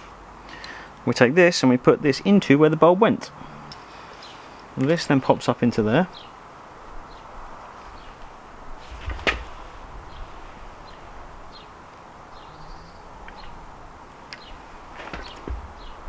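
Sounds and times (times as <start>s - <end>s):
faint bird chirps: 10.0s - 13.7s.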